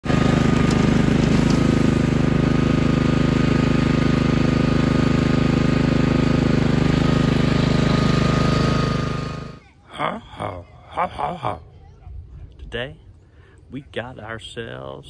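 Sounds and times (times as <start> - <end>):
brush cutter engine running: 0.0 - 9.6
cutter mowing through grass: 0.0 - 9.6.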